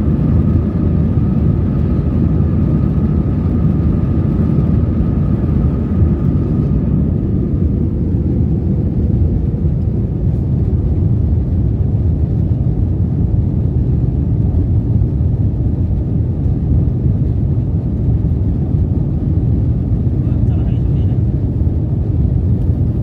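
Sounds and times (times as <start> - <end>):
jet engines droning: 0.0 - 23.0.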